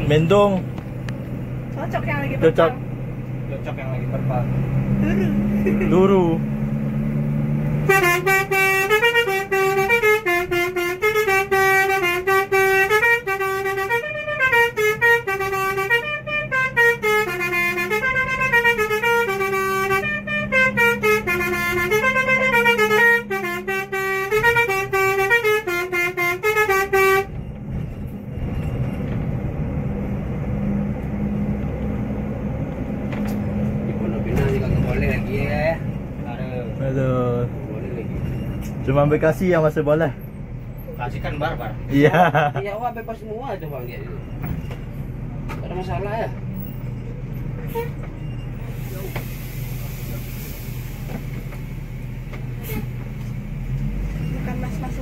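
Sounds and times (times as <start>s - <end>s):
bus engine: 0.0s - 55.0s
road noise: 0.0s - 55.0s
multi-tone bus horn melody: 7.8s - 27.4s, 47.6s - 48.1s, 52.6s - 53.0s.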